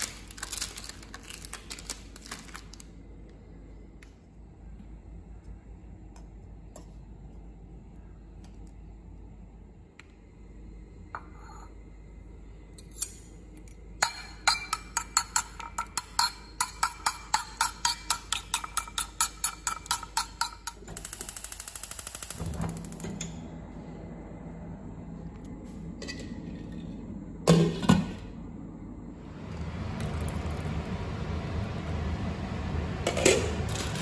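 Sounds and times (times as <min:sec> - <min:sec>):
gas burner humming: 0:00.0 - 0:34.0
utensil clinking against bowl: 0:14.0 - 0:20.9.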